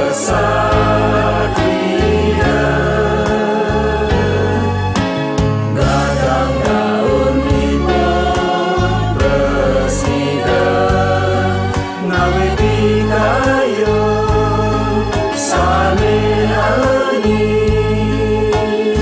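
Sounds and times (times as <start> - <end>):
choir singing a folk song: 0.0 - 5.0, 5.6 - 19.0
instrumental backing with bass line: 0.0 - 19.0.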